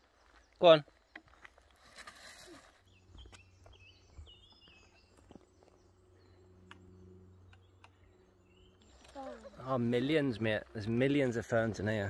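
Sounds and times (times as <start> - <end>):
footsteps on forest floor: 0.0 - 6.3
birds chirping: 0.0 - 12.0.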